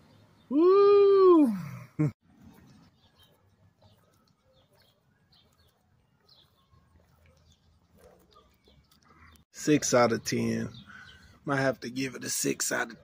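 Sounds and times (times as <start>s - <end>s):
faint bird chirps: 2.4s - 9.4s.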